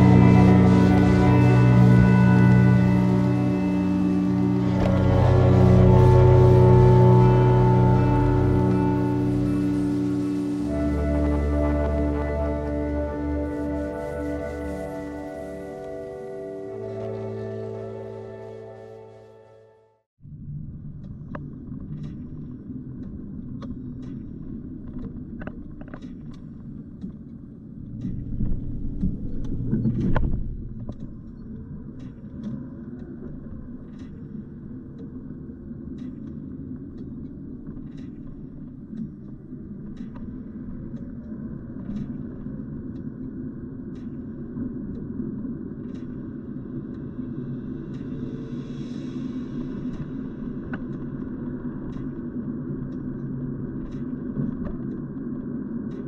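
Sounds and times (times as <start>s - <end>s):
faint sharp ticks: 21.3s - 56.0s.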